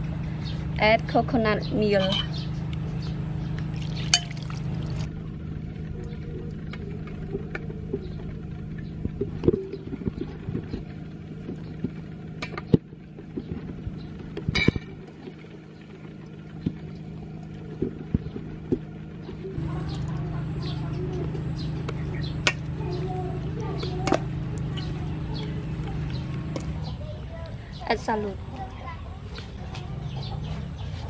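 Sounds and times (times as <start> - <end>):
low hum: 0.0 - 31.0
utensils clinking in metal bowl: 3.8 - 5.1.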